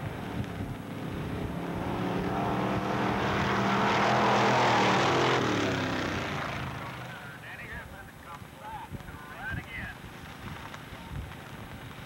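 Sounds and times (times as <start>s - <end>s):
racing engines passing by: 0.9s - 7.4s.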